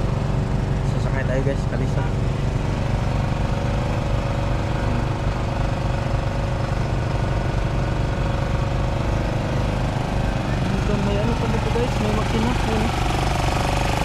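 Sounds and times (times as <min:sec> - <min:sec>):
engine running: 0:00.0 - 0:14.0.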